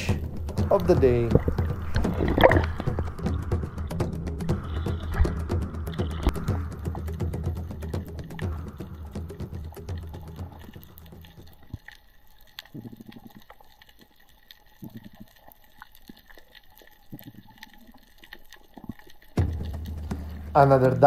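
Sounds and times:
background music: 0.0 - 11.6, 19.4 - 21.0
muffled underwater water bursts: 0.0 - 21.0.

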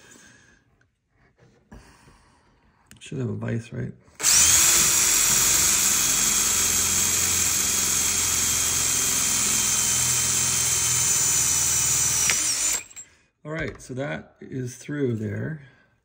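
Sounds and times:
power drill drilling metal: 4.2 - 13.1.

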